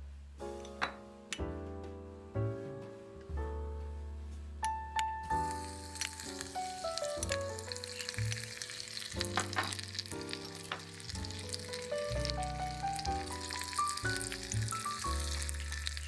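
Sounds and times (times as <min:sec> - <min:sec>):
garlic sizzling in oil: 0:05.3 - 0:16.0.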